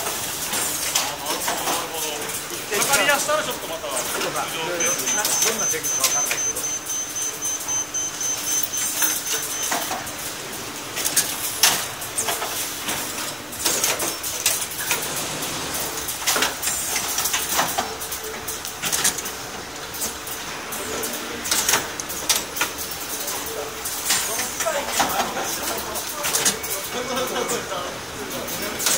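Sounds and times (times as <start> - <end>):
machine clacks: 10.9 - 27.7, 28.3 - 28.9.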